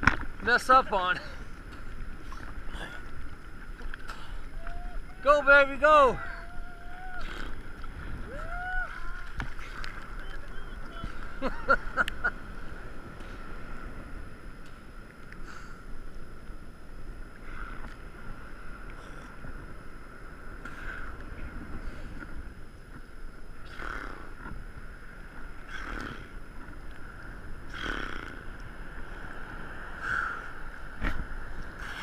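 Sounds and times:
water splashing: 0.0s - 14.0s
steady wash of waves: 0.0s - 32.0s
water slapping against camera: 8.8s - 12.3s.

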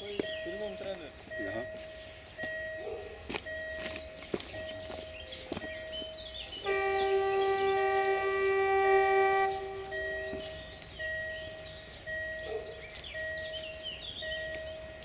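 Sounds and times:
two-note electronic beeping: 0.1s - 2.9s, 3.5s - 12.6s
locomotive horn blast: 6.6s - 10.9s.

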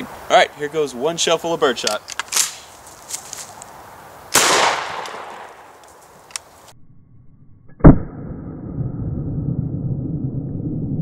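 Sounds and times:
shotgun blast: 4.3s - 5.7s.

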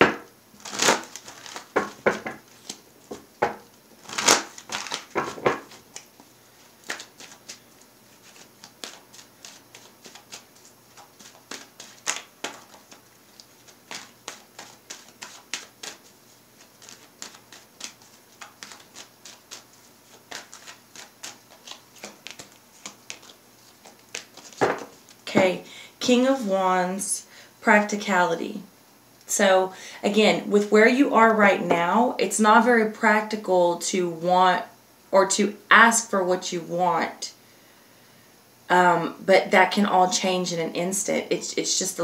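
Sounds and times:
cards being shuffled: 0.0s - 25.2s.

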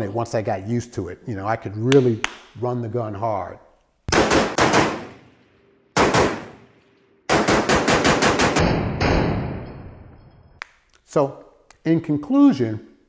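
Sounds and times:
rifle shots with echo: 4.1s - 5.3s, 6.0s - 6.7s, 7.3s - 9.7s.

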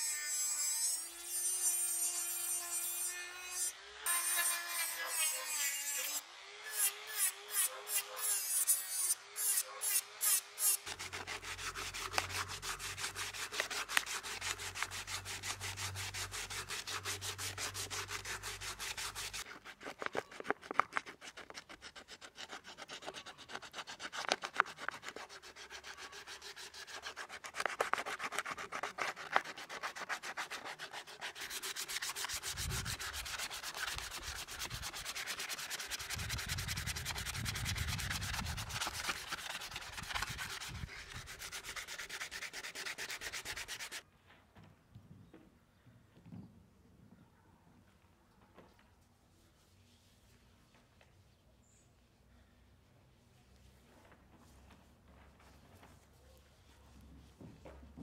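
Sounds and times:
sandpaper rubbing on wood: 7.5s - 44.0s.

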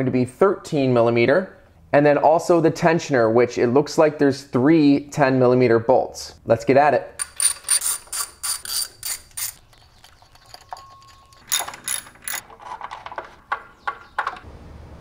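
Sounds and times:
socket ratchet clicking: 7.2s - 9.6s.

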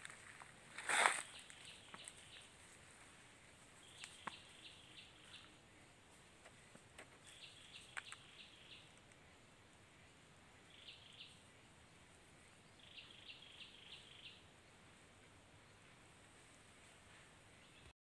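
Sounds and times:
faint bird chirps: 3.6s - 17.9s.

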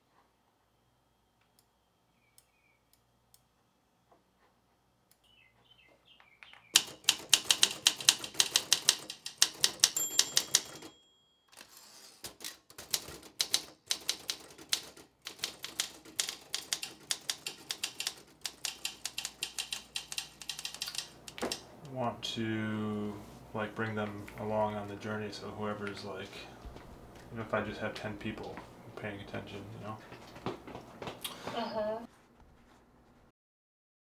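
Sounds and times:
typewriter keys clacking: 6.8s - 10.9s, 11.6s - 21.6s
typewriter bell ring: 9.6s - 12.1s.

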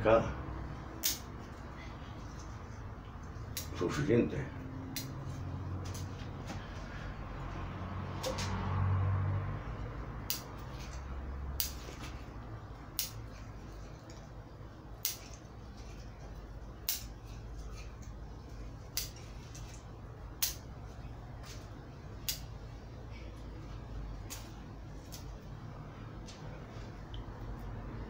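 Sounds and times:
scissors snipping: 1.0s - 1.3s, 3.2s - 3.8s, 4.9s - 5.2s, 10.2s - 11.0s, 11.6s - 11.9s, 12.9s - 13.2s, 15.0s - 15.4s, 16.8s - 18.2s, 18.9s - 19.8s, 20.4s - 20.7s, 22.2s - 22.5s.

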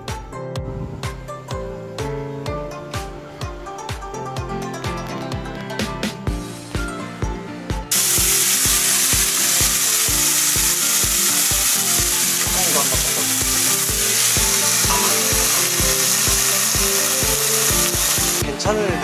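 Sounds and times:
background music with beat: 0.0s - 19.0s
steaks sizzling in a pan: 7.9s - 18.4s.

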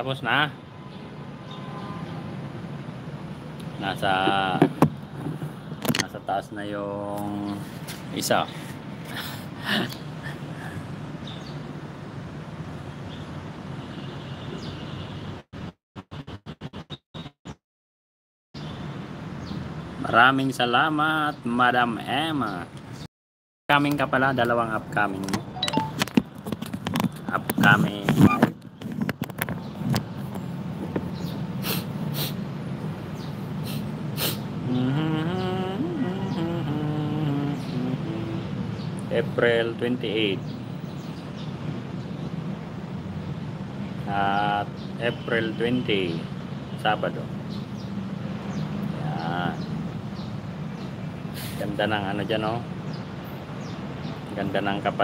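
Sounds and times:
outdoor background hum: 23.8s - 44.9s
faint high chirps: 25.6s - 26.0s
breathy sniffs: 31.6s - 32.4s, 33.6s - 34.5s, 51.3s - 51.6s.

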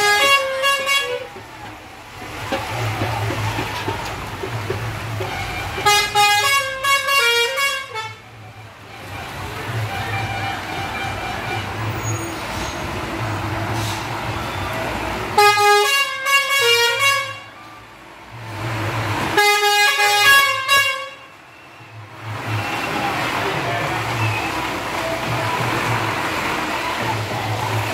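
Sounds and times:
musical bus horn: 0.0s - 1.7s, 5.1s - 13.1s, 13.8s - 17.8s, 19.2s - 27.0s
bus engine humming: 0.0s - 27.9s.

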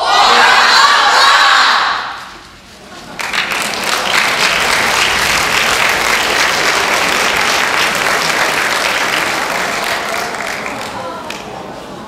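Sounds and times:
audience applauding: 3.1s - 11.6s.

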